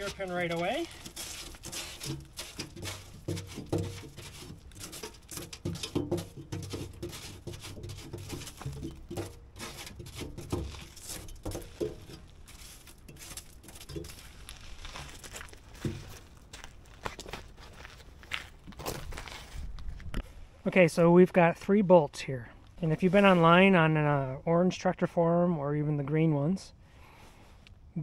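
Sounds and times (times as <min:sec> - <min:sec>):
dull thuds: 0:00.0 - 0:16.7
gravel clicks and scrapes: 0:00.0 - 0:21.6.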